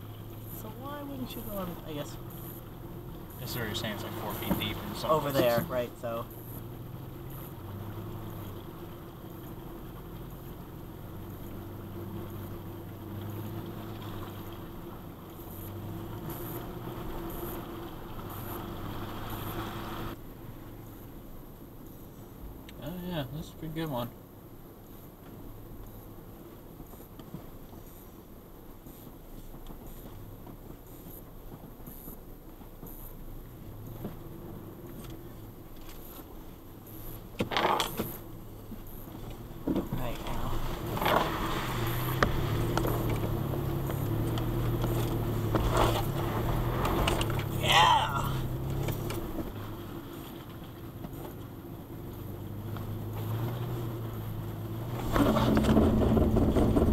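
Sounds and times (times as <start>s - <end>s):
car engine running: 0.0s - 56.9s
faint high ticks: 28.8s - 37.2s
water swishing under vehicle: 38.0s - 51.4s.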